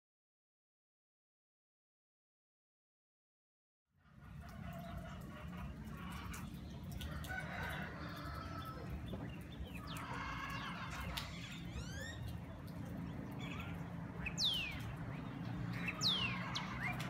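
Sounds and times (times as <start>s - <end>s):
birds chirping: 4.1s - 17.0s
roosters crowing: 7.0s - 9.2s, 9.8s - 11.4s.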